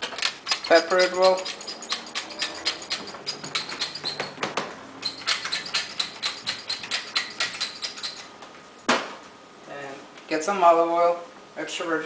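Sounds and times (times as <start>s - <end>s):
pepper mill grinding: 0.0s - 4.4s, 5.0s - 8.3s.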